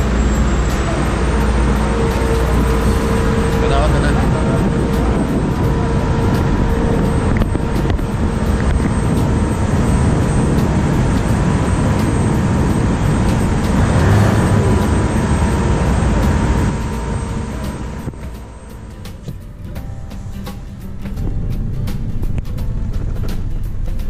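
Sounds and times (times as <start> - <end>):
ship engine rumble: 0.0 - 24.0
wind: 0.0 - 24.0.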